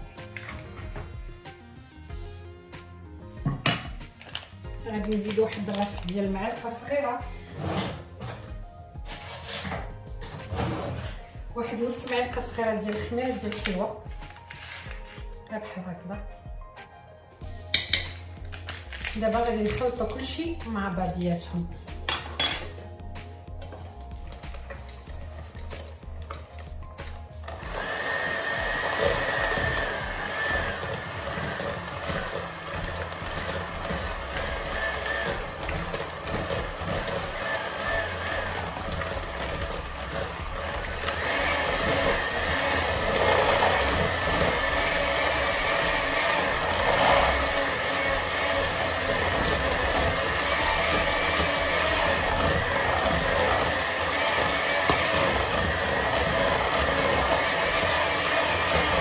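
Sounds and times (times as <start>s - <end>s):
electric hand mixer whining: 9.2s - 15.3s, 17.8s - 21.1s, 23.5s - 59.0s.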